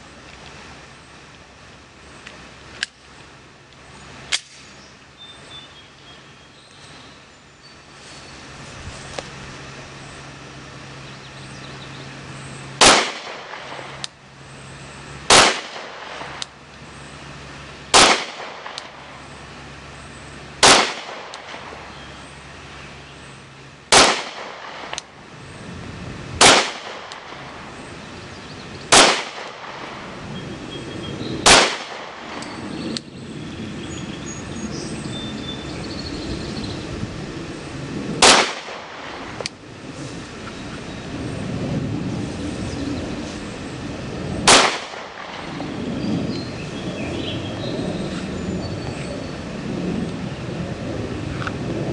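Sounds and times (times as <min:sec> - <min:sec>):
pistol shots: 0:12.8 - 0:14.0, 0:15.3 - 0:16.4, 0:17.9 - 0:19.0, 0:20.6 - 0:21.7, 0:23.9 - 0:25.0, 0:26.4 - 0:27.4, 0:28.9 - 0:30.0, 0:31.4 - 0:32.4, 0:38.2 - 0:39.2, 0:44.4 - 0:45.5.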